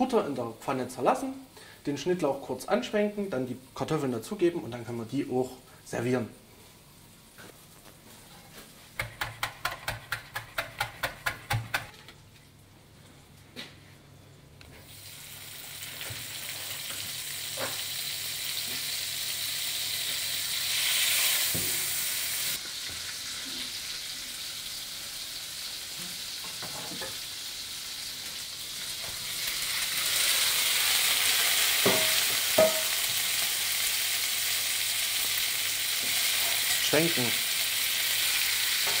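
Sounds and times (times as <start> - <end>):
butter sizzling in a frying pan: 14.9 - 39.0.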